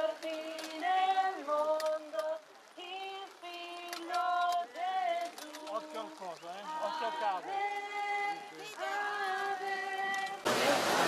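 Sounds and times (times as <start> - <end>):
voices singing a hymn: 0.0 - 11.0.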